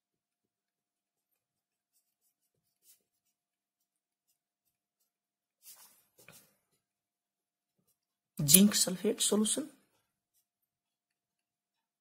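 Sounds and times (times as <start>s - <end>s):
pen scratching on paper: 1.2s - 5.9s.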